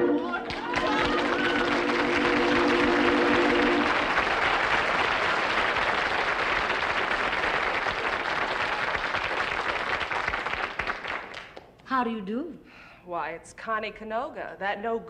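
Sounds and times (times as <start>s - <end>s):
held musical chord: 0.0s - 4.2s
studio audience applauding: 0.4s - 11.6s.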